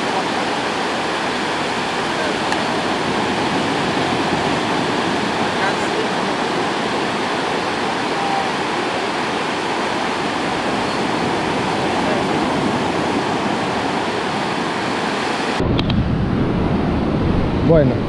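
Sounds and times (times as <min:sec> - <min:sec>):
sea surf breaking on beach: 0:00.0 - 0:18.0
low rumble: 0:15.6 - 0:18.0.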